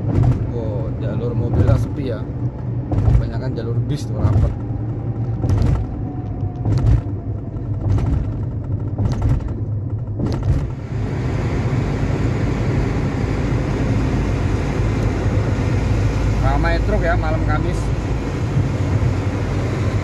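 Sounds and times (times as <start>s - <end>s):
car engine and tyre rumble: 0.0s - 20.0s
road noise rushing: 0.0s - 20.0s
short sharp thumps: 2.8s - 3.4s.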